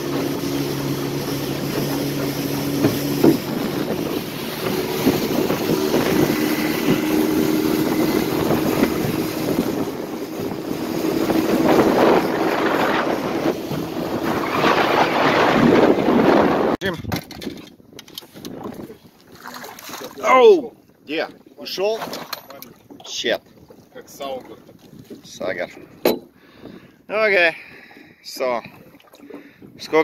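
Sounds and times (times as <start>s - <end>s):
outboard motor running: 0.0s - 16.8s, 27.6s - 30.0s
water rushing past hull: 0.0s - 16.8s, 18.5s - 30.0s
wind buffeting microphone: 0.0s - 21.4s, 22.8s - 30.0s.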